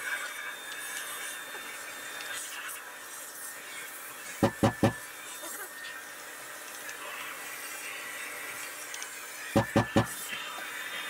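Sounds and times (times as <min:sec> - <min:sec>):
wooden board knocks: 0:04.4 - 0:05.0, 0:09.6 - 0:10.1.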